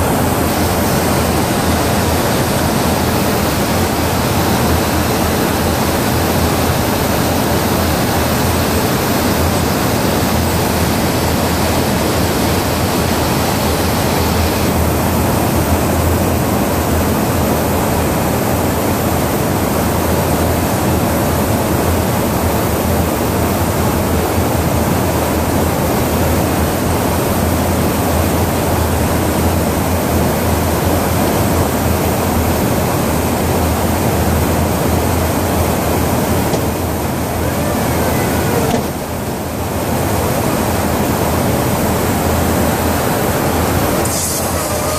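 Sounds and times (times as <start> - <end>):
rushing hiss of airflow and engines: 0.0 - 44.9.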